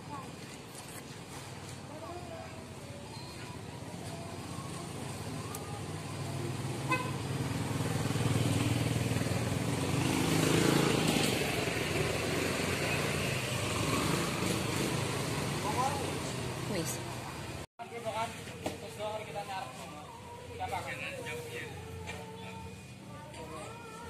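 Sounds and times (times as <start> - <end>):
motor scooter passing: 4.4 - 17.6.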